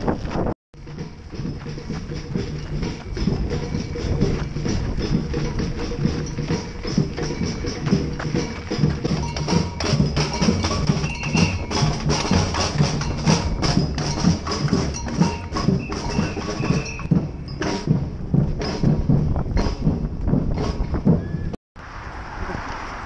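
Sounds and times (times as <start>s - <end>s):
street drum band playing: 0.8s - 21.6s.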